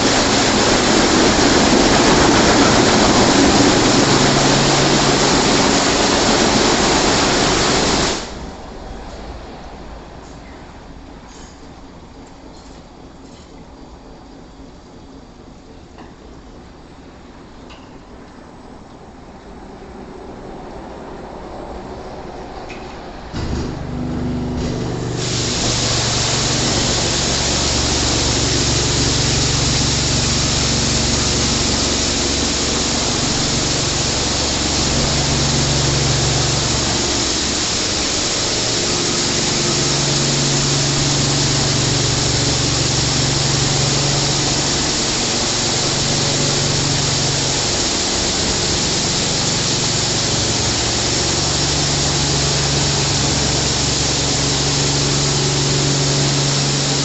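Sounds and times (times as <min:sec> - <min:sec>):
water jets hissing onto car: 0:00.0 - 0:08.6, 0:24.6 - 0:57.0
pump and motors humming: 0:00.0 - 0:10.2, 0:23.3 - 0:57.0.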